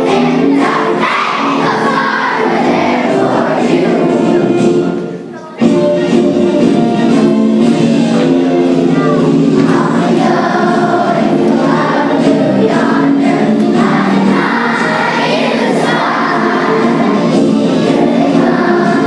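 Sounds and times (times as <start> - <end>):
children's choir singing: 0.0 - 19.0.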